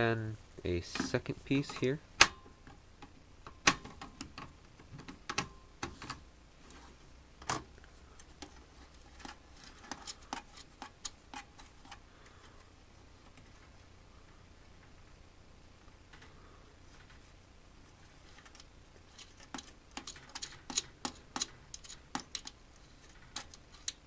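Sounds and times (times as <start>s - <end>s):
metallic clicks and taps: 19.5s - 24.0s.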